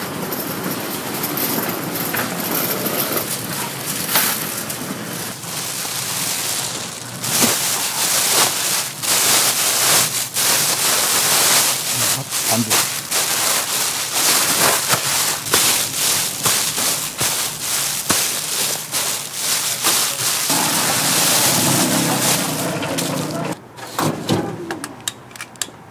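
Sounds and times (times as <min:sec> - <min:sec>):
griddle sizzling: 0:03.6 - 0:23.6
knocks and clatters: 0:20.5 - 0:23.6.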